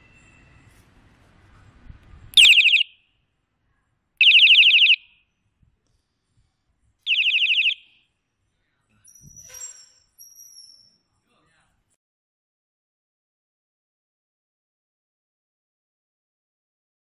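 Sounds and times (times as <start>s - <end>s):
electronic horn warbling siren blasts: 2.4s - 3.0s.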